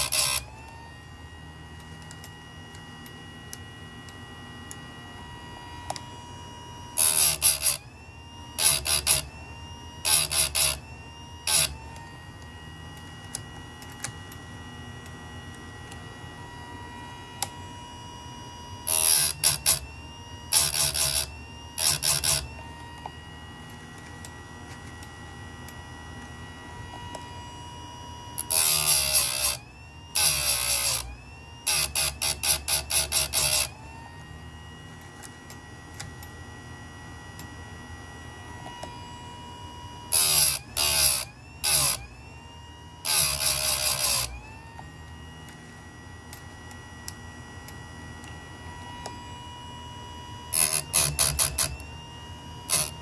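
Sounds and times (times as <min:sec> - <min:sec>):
grinding wheel grinding chain: 0:00.0 - 0:00.4, 0:07.0 - 0:07.8, 0:50.5 - 0:51.7, 0:52.7 - 0:53.0
sharpener motor whine: 0:00.0 - 0:53.0.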